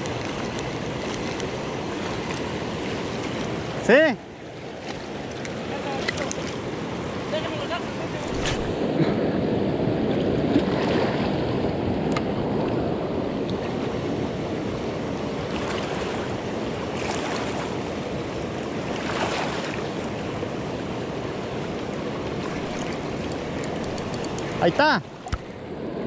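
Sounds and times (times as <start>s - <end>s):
river water rushing: 0.0s - 9.4s, 10.3s - 26.0s
wind rumbling on microphone: 5.6s - 19.0s, 20.6s - 26.0s.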